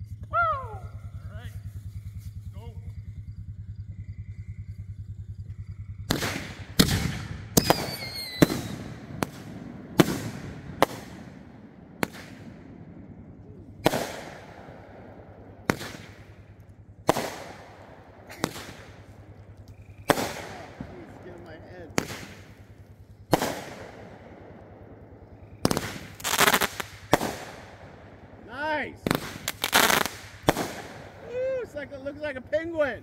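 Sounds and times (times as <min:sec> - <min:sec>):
fireworks bangs: 0:00.0 - 0:33.0
falling firework whistle: 0:05.4 - 0:12.6, 0:15.4 - 0:22.6, 0:25.4 - 0:27.7, 0:29.0 - 0:32.1.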